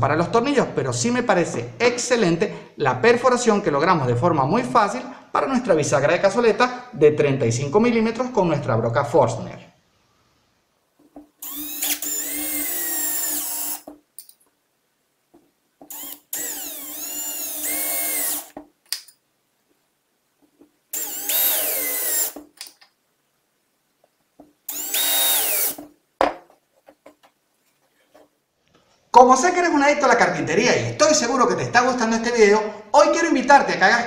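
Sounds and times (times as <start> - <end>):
cordless drill driving screws: 11.4 - 13.9, 15.9 - 18.6, 21.0 - 22.4, 24.7 - 25.8.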